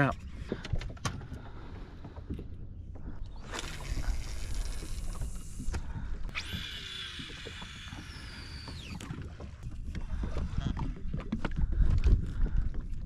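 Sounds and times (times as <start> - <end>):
water noise around boat: 0.0 - 13.0
wind: 0.0 - 13.0
high mechanical whine: 6.3 - 9.1.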